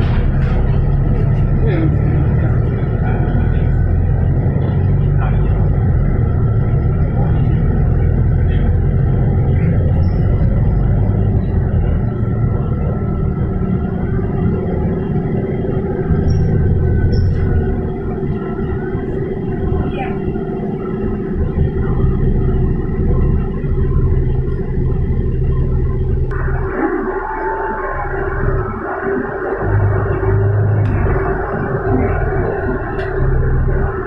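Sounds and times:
bus engine rumble: 0.0 - 34.0
constant hum: 0.0 - 34.0.

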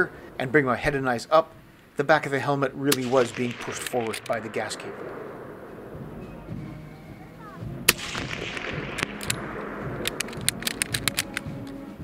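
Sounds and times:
rifle shot with echo: 2.8 - 11.6.

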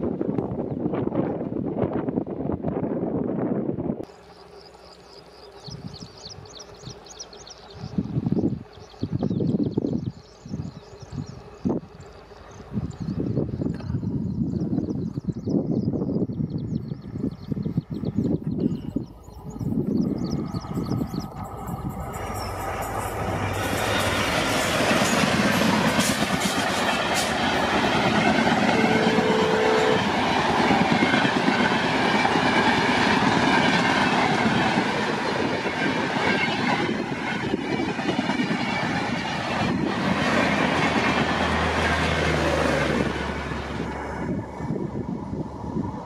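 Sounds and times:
diesel locomotive passing: 0.0 - 46.0
train wheels clattering on rails: 20.3 - 44.1.

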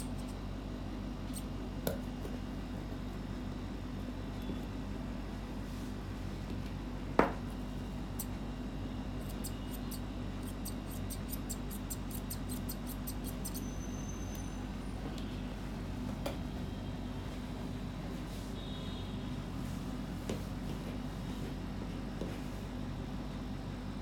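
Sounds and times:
steady low hum: 0.0 - 24.0
scissors snipping hair: 9.2 - 13.7.

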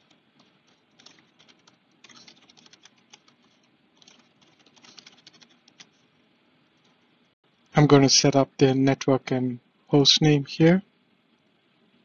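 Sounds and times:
typing on computer keyboard: 0.0 - 6.0.

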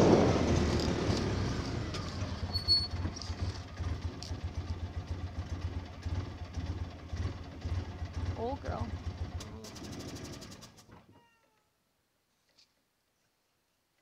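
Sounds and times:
vehicle engine idling: 0.0 - 10.9.

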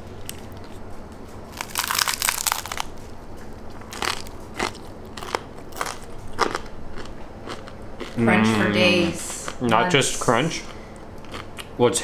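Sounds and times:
crunching bite of crisp tortilla: 1.5 - 3.1
chewing crunches: 1.5 - 8.2, 10.5 - 11.8.

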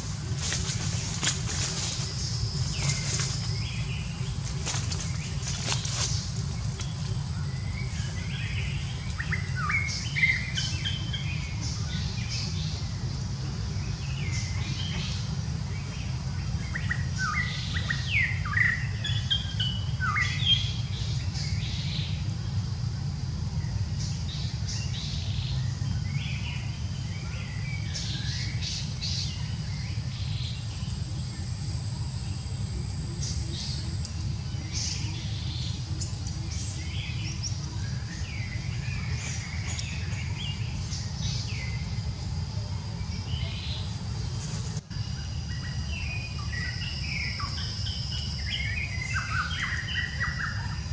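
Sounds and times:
birds chirping: 0.0 - 50.9
faint high-pitched hum: 0.0 - 50.9.

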